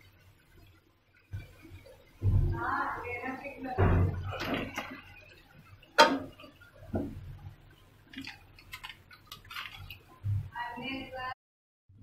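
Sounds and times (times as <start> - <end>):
metal kitchenware clicks and taps: 6.0 - 6.5.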